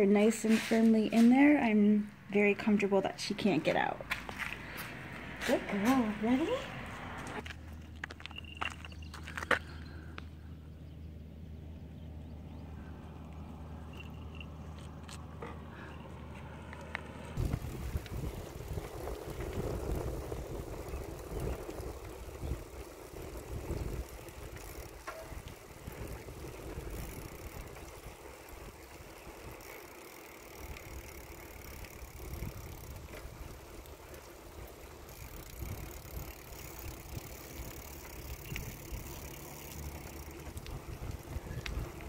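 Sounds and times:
bike tyres rolling on asphalt: 0:00.0 - 0:42.0
wind rumbling on microphone: 0:17.4 - 0:29.8, 0:30.6 - 0:42.0.

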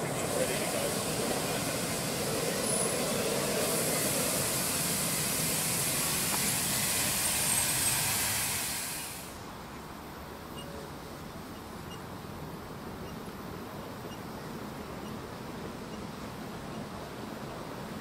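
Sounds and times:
steam hissing: 0:00.0 - 0:09.6.

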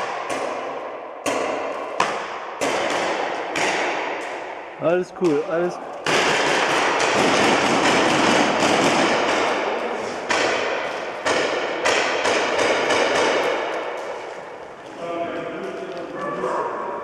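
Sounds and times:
paintball markers firing: 0:06.0 - 0:14.5.

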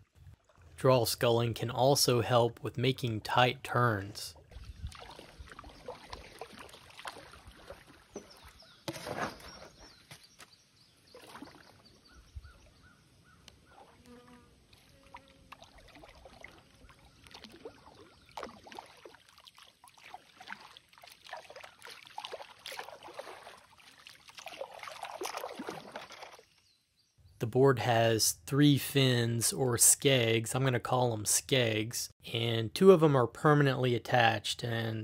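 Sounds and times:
paddle swishing through water: 0:04.3 - 0:10.3, 0:11.0 - 0:13.0, 0:14.7 - 0:26.6
loud paddle splash: 0:20.0 - 0:26.3.

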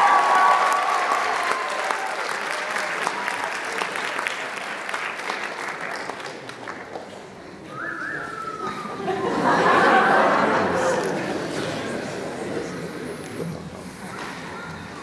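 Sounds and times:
audience applauding: 0:00.0 - 0:07.4.

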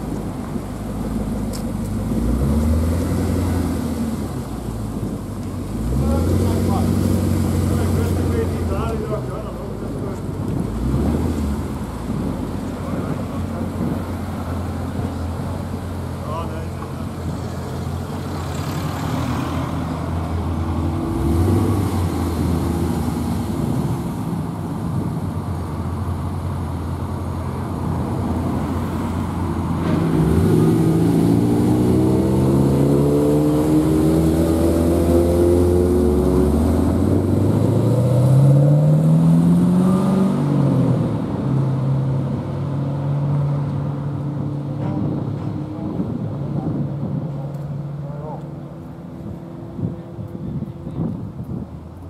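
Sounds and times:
car exhaust revving: 0:10.4 - 0:16.1.

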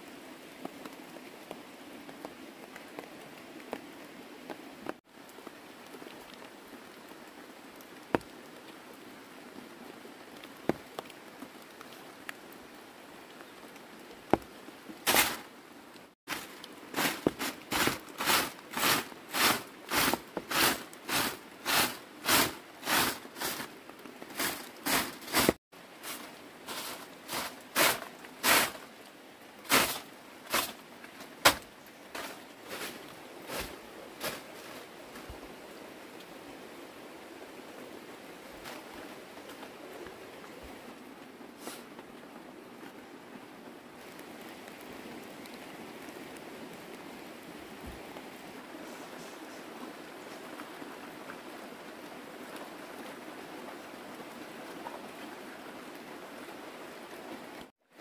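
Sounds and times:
faint steady hiss: 0:00.0 - 0:58.0
broom sweeping stone floor: 0:15.1 - 0:15.5, 0:16.3 - 0:23.7, 0:24.3 - 0:28.9, 0:29.6 - 0:34.9, 0:41.6 - 0:41.9.

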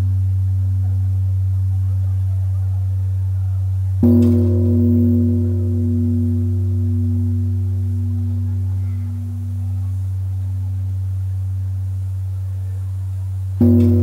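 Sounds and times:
large bronze bell ringing: 0:04.0 - 0:11.6, 0:13.6 - 0:14.0.

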